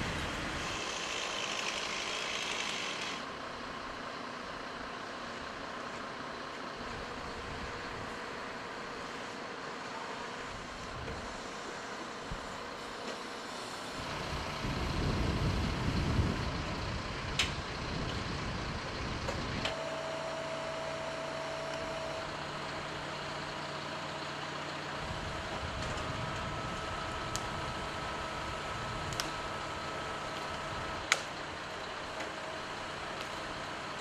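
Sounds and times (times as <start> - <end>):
hydraulic whine: 0.0 - 3.3, 10.3 - 24.3, 25.0 - 32.3
fire truck engine running: 0.0 - 34.0.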